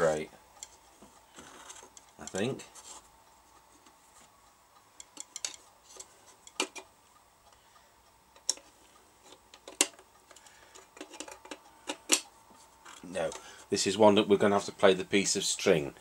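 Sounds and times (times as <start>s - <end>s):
metal clicks and taps: 5.0s - 6.9s, 8.4s - 12.3s.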